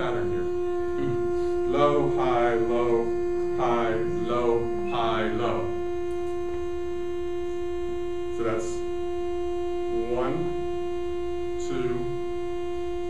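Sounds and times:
person speaking: 0.0 - 5.8
steady loudspeaker tone: 0.0 - 13.0.

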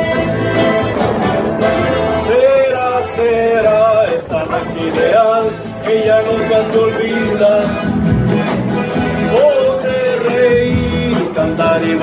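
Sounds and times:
wavering melody line: 0.0 - 5.4
strummed string ensemble: 0.0 - 12.0
person singing: 2.0 - 8.0, 9.2 - 12.0.

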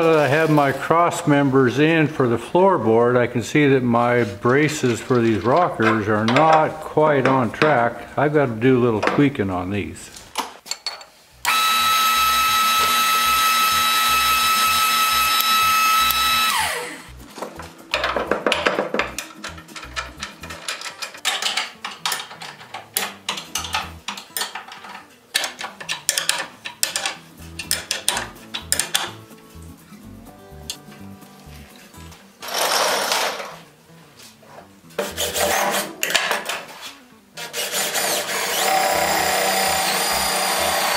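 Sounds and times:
machine motor whining: 11.4 - 17.1, 37.8 - 40.9
metal knocks and taps: 17.9 - 29.2.

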